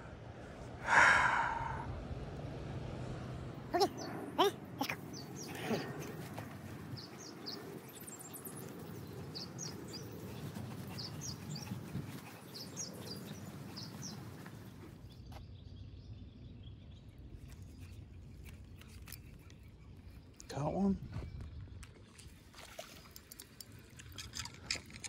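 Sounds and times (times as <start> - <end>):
small birds chirping: 3.7 - 22.1.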